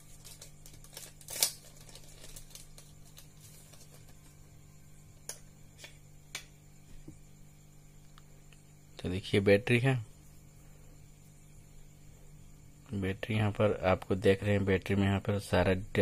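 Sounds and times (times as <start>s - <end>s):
plastic packet crinkling: 0.0s - 4.2s
low steady hum: 0.0s - 16.0s.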